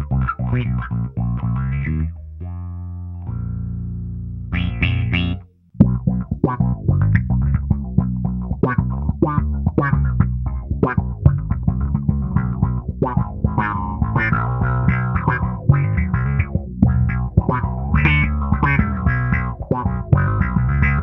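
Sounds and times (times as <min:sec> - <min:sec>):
bass guitar with auto-wah: 0:00.0 - 0:21.0.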